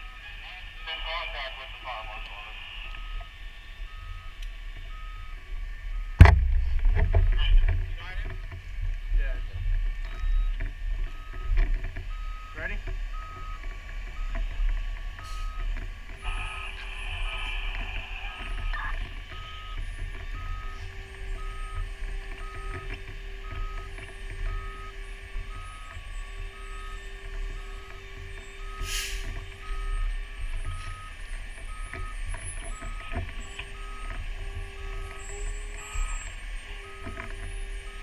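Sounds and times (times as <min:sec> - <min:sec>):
back-up alarm beeping: 0:00.0 - 0:06.4, 0:09.4 - 0:38.0
diesel engine rumbling: 0:00.0 - 0:38.0
short hiss: 0:28.8 - 0:29.2.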